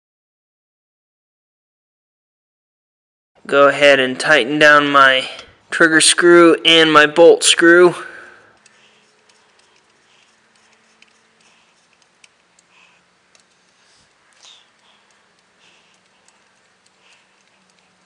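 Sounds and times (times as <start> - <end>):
screwdriver clicks and scrapes: 8.6 - 18.0.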